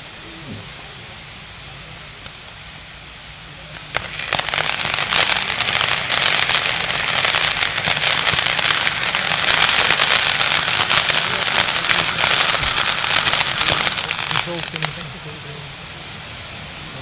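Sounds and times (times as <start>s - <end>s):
firework hissing sparks: 0.0s - 17.0s
firework sharp crack: 3.6s - 15.4s.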